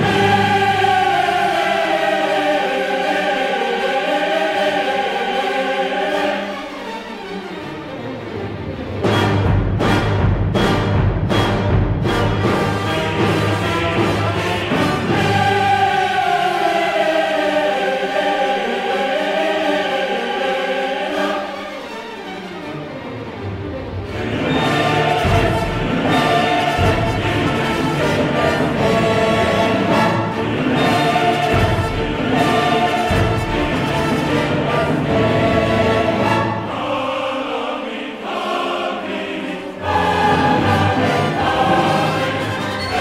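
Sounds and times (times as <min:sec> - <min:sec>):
choir singing held chords: 0:00.0 - 0:43.0.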